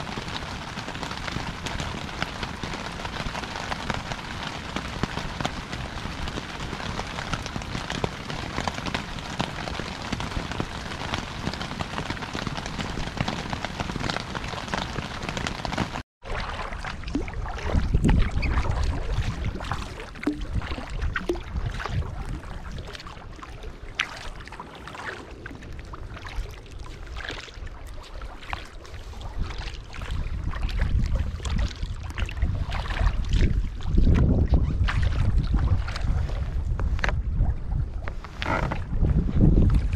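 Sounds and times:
heavy rain falling: 0:00.0 - 0:16.0
water drips and splashes: 0:00.0 - 0:39.9
wind buffeting microphone: 0:16.7 - 0:28.0, 0:28.8 - 0:39.9.

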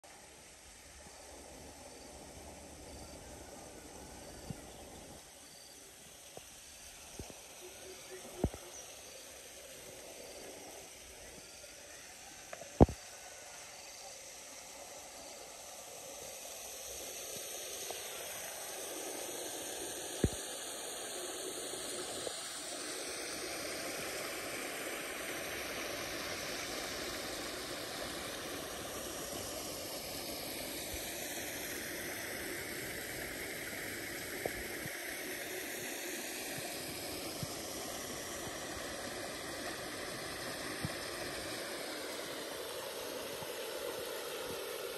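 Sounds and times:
waterfall splashing into pool: 0:15.6 - 0:44.9.

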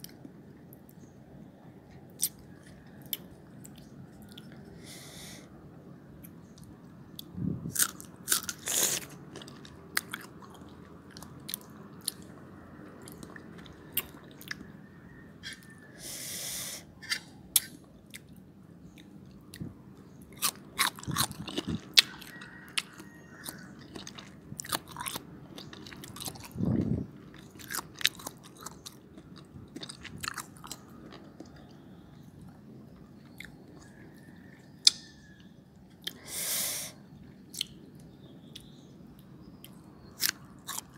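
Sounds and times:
person chewing crunchy fruit: 0:06.6 - 0:14.7, 0:17.0 - 0:34.0, 0:35.9 - 0:36.4, 0:37.5 - 0:37.8, 0:39.6 - 0:40.9.

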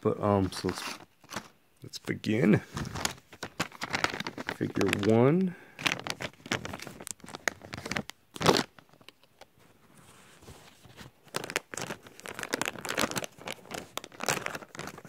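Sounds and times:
plastic packet crinkling and tearing: 0:00.5 - 0:01.5, 0:02.7 - 0:09.5, 0:11.2 - 0:15.0.

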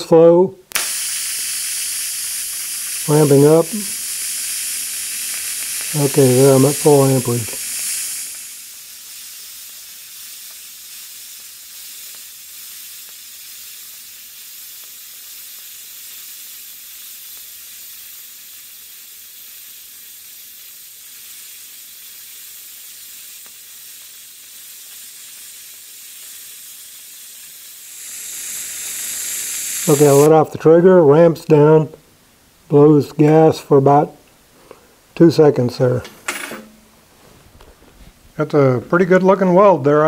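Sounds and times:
welding arc hissing: 0:00.7 - 0:30.4.

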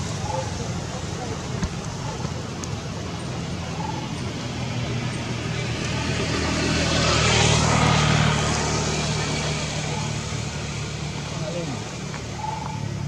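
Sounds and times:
vehicle passing: 0:00.0 - 0:13.0.

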